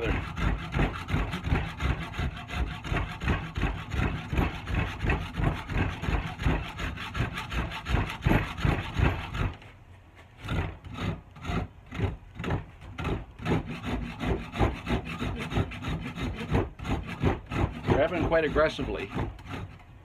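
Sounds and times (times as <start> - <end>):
rasp scraping wood: 0.0 - 20.0.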